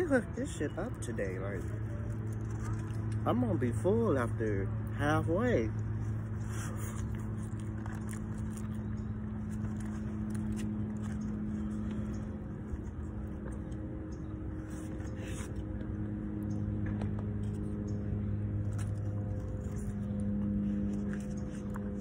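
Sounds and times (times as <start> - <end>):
idling engine hum: 0.0 - 22.0
person chewing: 1.8 - 3.2, 6.0 - 13.9.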